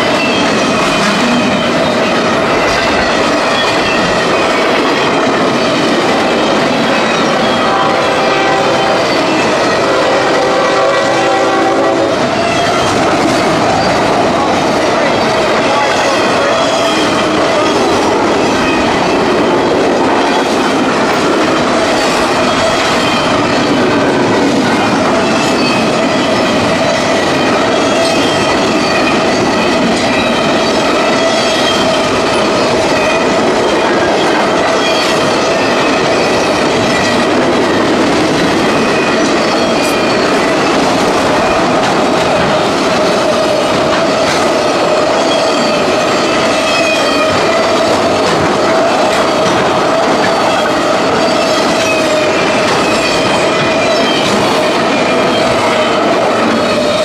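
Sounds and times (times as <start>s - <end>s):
wheels squealing: 0.0s - 10.6s
wheel-on-rail noise: 0.0s - 57.0s.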